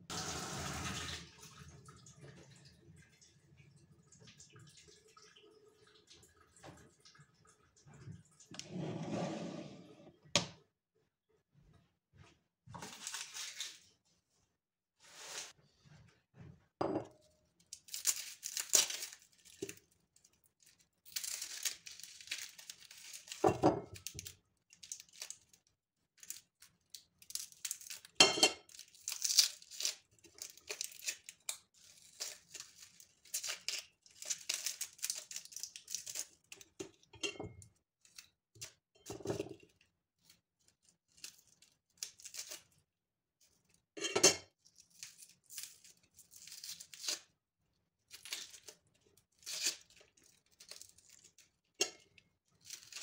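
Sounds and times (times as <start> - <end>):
packaging rustling and tearing: 21.1 - 23.4.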